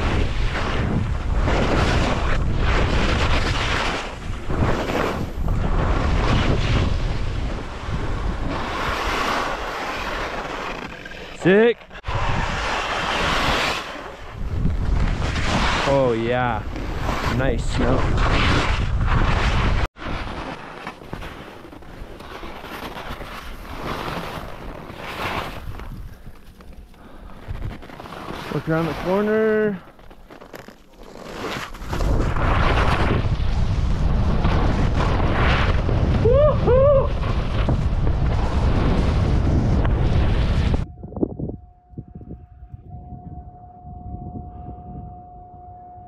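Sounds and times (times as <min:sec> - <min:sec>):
wind rumble on microphone: 0:00.0 - 0:09.7, 0:12.0 - 0:20.4, 0:31.8 - 0:46.0
skis scraping through snow: 0:00.0 - 0:36.3, 0:37.1 - 0:40.8
skis running over snow: 0:16.8 - 0:36.3
person whooping: 0:36.2 - 0:37.2.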